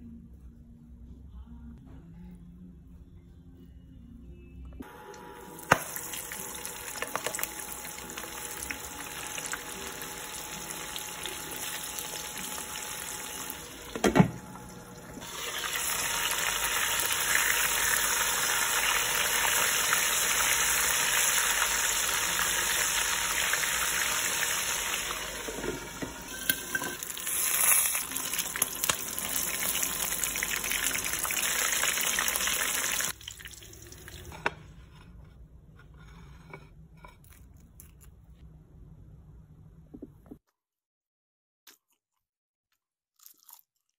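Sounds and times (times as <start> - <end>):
fish frying in hot oil: 5.6 - 13.6, 15.2 - 25.6, 27.0 - 34.2.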